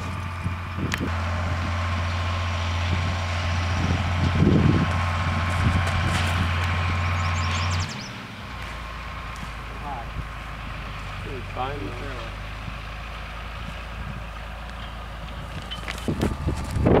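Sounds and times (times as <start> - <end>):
low mechanical hum: 13.6 - 17.0.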